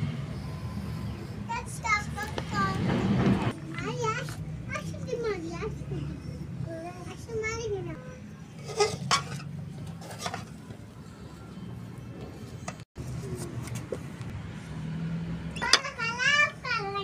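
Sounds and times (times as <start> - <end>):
metal spoon clinking on dishes: 8.6 - 9.5.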